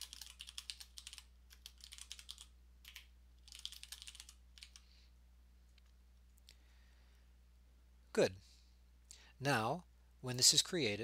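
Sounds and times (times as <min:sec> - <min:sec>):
typing on computer keyboard: 0:00.0 - 0:04.8.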